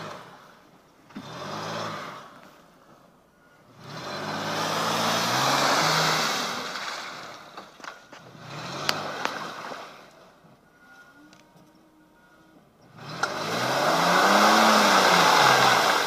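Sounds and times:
suv engine revving: 0:00.0 - 0:02.8, 0:03.6 - 0:10.4, 0:12.0 - 0:16.0
wheels spinning in mud: 0:03.7 - 0:10.4, 0:12.9 - 0:16.0.

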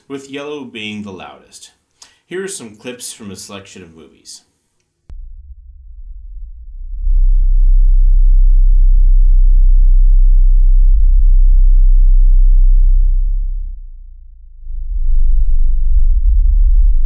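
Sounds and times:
deep sub-bass rumble: 0:05.1 - 0:17.0.

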